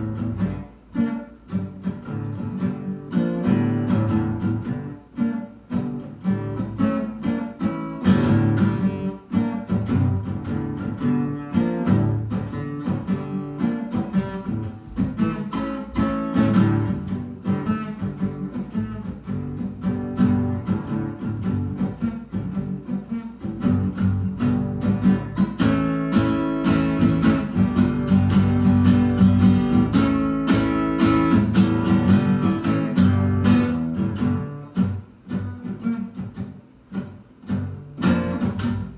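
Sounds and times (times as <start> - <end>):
acoustic guitar playing: 0.0 - 38.9.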